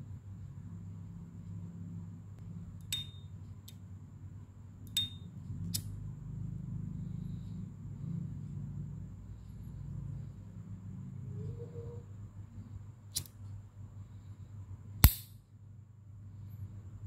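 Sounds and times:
lighter struck click: 0:15.0 - 0:15.3.

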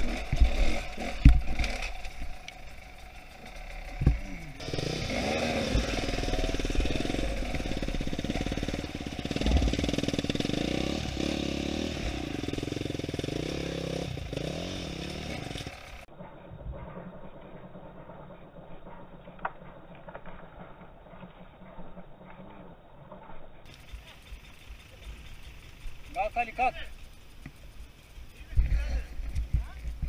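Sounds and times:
dirt bike engine revving: 0:00.0 - 0:16.1, 0:23.7 - 0:30.0.

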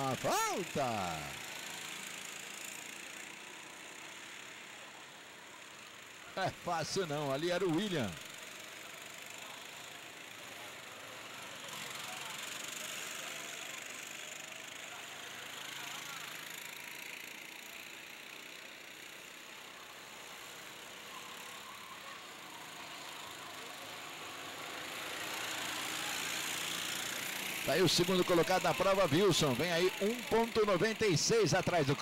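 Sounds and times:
go-kart engines passing: 0:00.0 - 0:32.0.

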